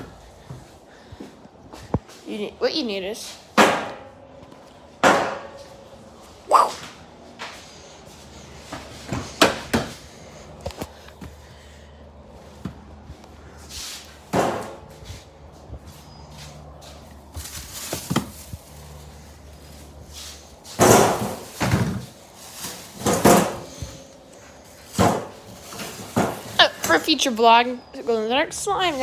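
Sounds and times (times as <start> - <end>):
plastic bag rustling: 17.0 - 20.6, 21.3 - 23.5.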